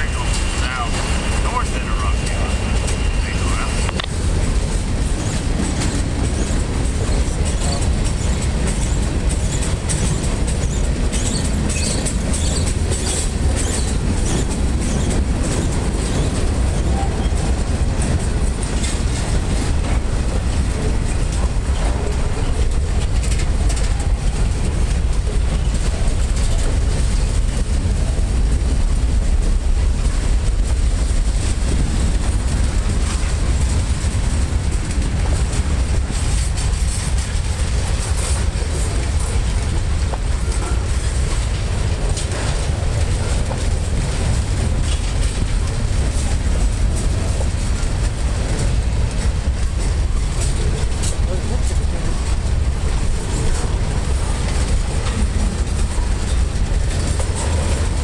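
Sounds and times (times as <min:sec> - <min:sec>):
train wheels rumbling on rail: 0:00.0 - 0:58.0
wheels clicking over rail joints: 0:00.0 - 0:58.0.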